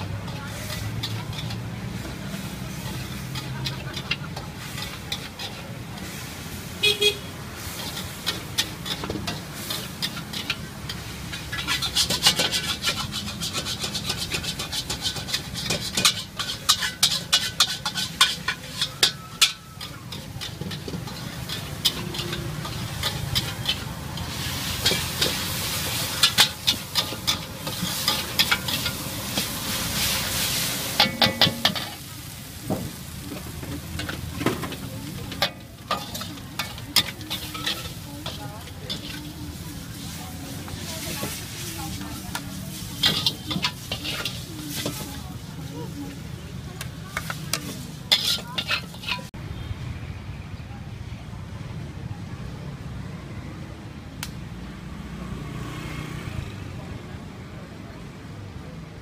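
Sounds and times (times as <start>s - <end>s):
metal spatula scraping a wok: 0.0s - 49.4s
street traffic hum: 0.0s - 59.0s
vehicle horn toot: 6.8s - 7.3s.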